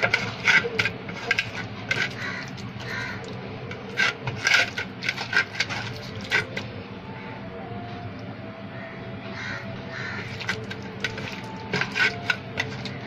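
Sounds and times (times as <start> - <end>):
wet squelch of kneading: 0.0 - 6.7, 10.2 - 13.0
crows cawing: 2.0 - 3.4, 8.7 - 10.5.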